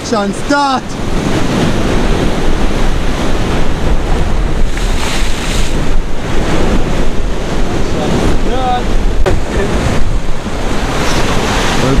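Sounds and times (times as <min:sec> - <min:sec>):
surf on rocky shore: 0:00.0 - 0:12.0
wind buffeting microphone: 0:00.0 - 0:12.0.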